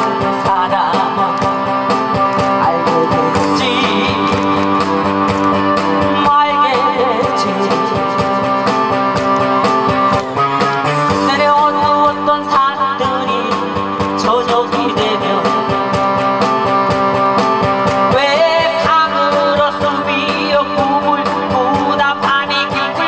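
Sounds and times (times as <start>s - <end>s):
woman singing into microphone: 0.0s - 1.7s, 2.4s - 4.8s, 6.0s - 8.4s, 11.2s - 15.9s, 18.1s - 23.0s
instrumental backing with steady beat: 0.0s - 23.0s.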